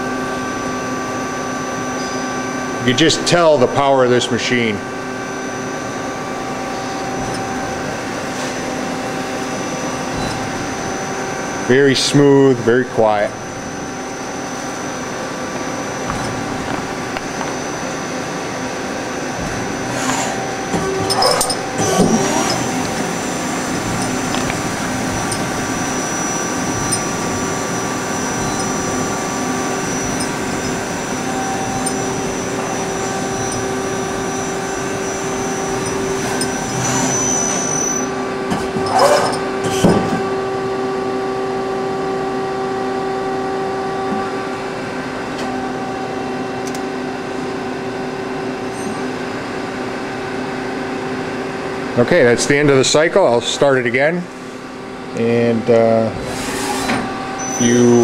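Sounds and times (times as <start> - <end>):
high machine whine: 0.0 - 58.0
lathe machine hum: 0.0 - 58.0
short loud machine sounds: 18.6 - 38.2.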